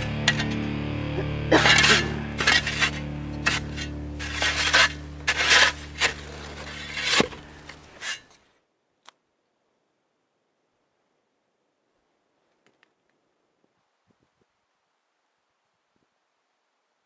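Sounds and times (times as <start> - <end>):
steady low hum: 0.0 - 8.1
shovel scraping packed snow: 1.5 - 8.3.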